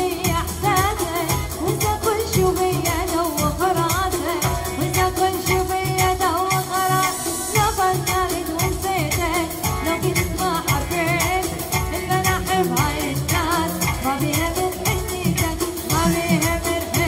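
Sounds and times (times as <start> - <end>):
band with steady beat: 0.0 - 17.0
woman singing pop song: 0.0 - 17.0.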